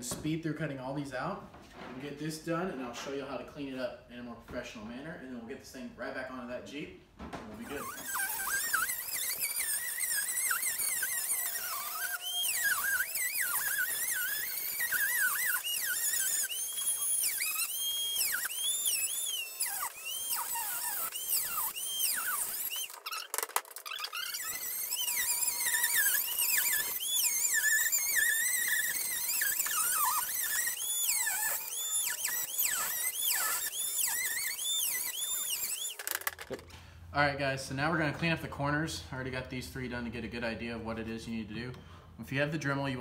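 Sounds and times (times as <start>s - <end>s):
rotary tool whine cutting plastic: 7.6s - 36.7s.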